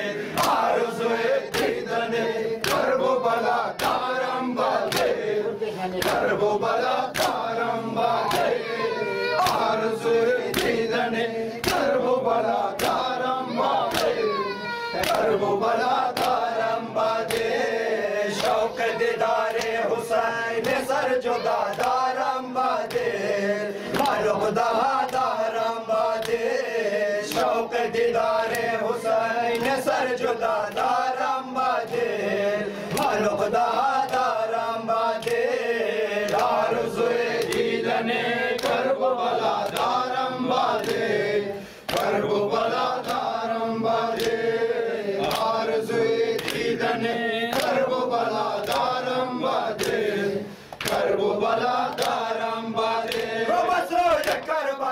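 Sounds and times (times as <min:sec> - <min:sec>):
men chanting a lament: 0:00.0 - 0:54.9
palms slapping bare chests: 0:00.3 - 0:00.7, 0:01.5 - 0:01.8, 0:02.6 - 0:03.0, 0:03.8 - 0:05.2, 0:06.0 - 0:07.5, 0:09.4 - 0:09.8, 0:10.4 - 0:10.9, 0:11.6 - 0:12.0, 0:12.7 - 0:14.4, 0:15.0 - 0:15.4, 0:16.0 - 0:16.6.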